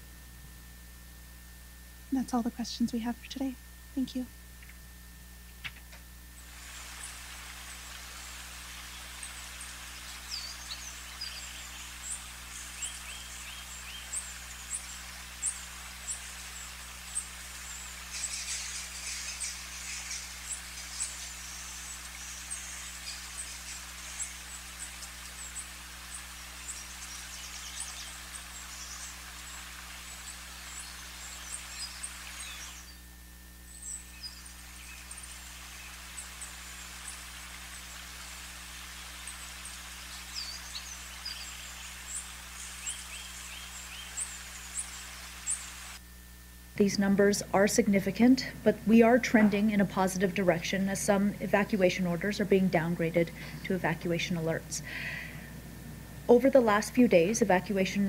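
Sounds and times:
low electrical hum: 0.0s - 58.0s
steady hiss: 2.0s - 58.0s
small birds chirping: 6.4s - 46.0s.

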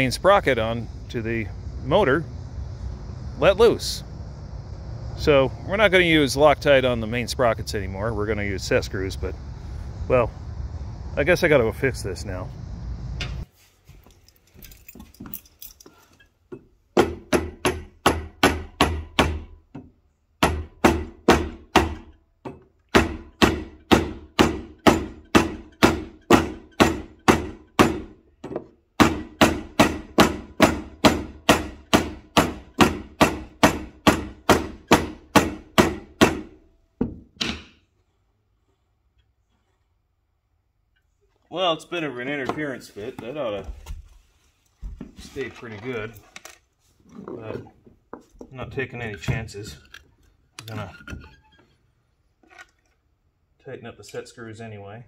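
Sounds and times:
rubber mallet hitting steel: 17.0s - 19.6s, 20.4s - 28.2s, 29.0s - 37.8s.

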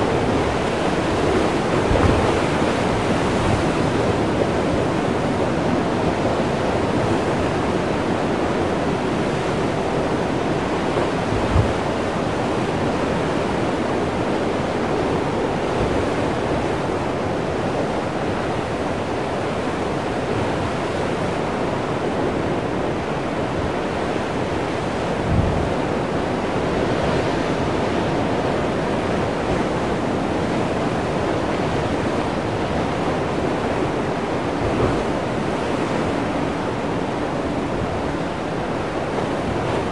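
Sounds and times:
surf breaking on rocks: 0.0s - 4.2s.

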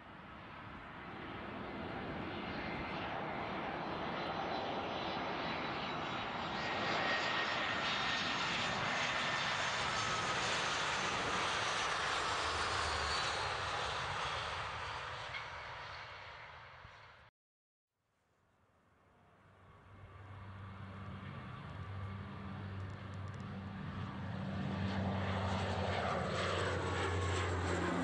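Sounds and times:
jet airliner passing: 0.1s - 17.3s, 19.8s - 28.0s.

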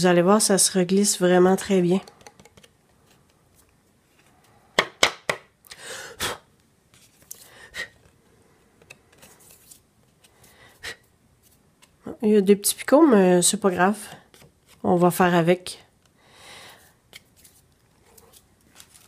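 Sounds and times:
card tapping: 2.0s - 3.4s
paper rustling and crinkling: 6.9s - 7.5s, 8.8s - 10.5s, 17.1s - 19.0s.

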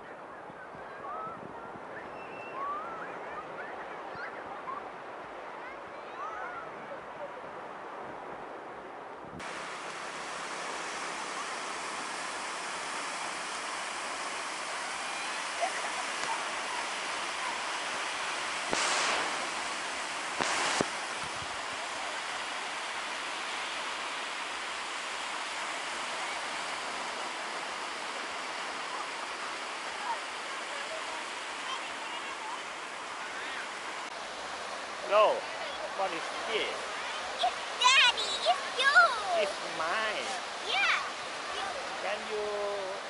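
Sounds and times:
waves breaking on beach: 9.4s - 43.0s.

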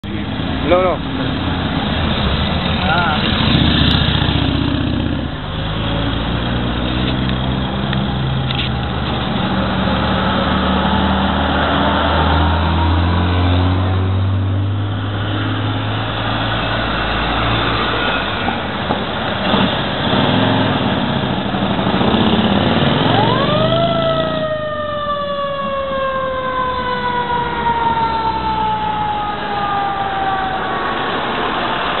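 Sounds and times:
vehicle engines in traffic: 0.0s - 32.0s
siren winding up and down: 23.0s - 31.0s.

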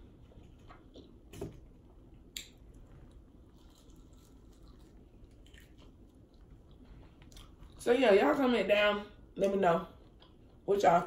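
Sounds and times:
biting and chewing food: 2.4s - 7.8s.

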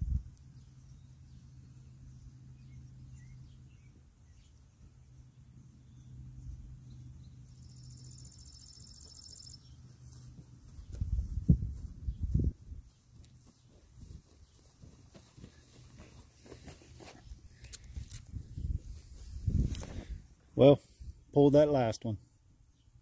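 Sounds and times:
steady low hum: 0.0s - 21.4s
faint bird chirps: 0.1s - 11.0s.

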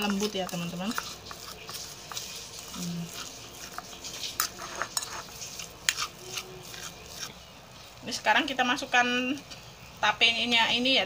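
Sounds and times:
fork scraping on ceramic plate: 0.0s - 7.4s.

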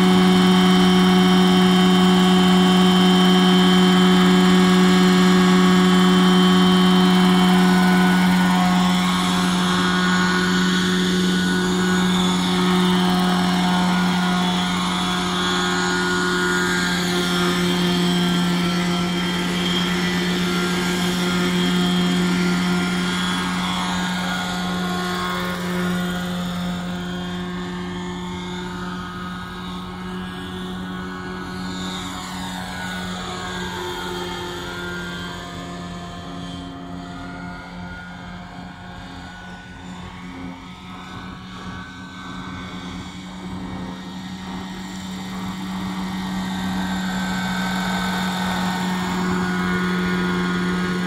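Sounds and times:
model helicopter drone and whine: 0.0s - 51.0s.

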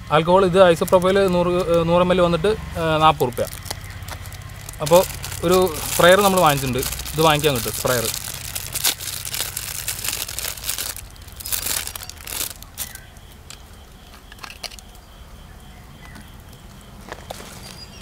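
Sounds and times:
plastic crinkling and rustling: 0.6s - 1.9s, 2.8s - 15.0s.

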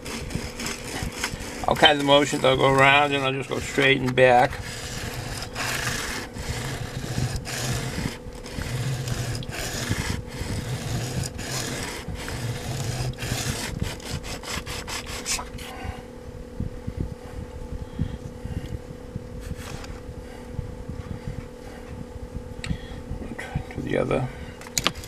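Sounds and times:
steady low hum: 0.0s - 25.0s
blade scraping on sharpening stone: 4.5s - 15.4s.

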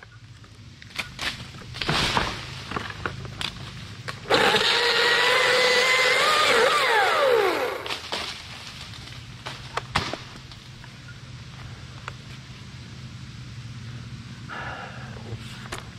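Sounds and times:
battery chainsaw whine: 1.6s - 8.2s.

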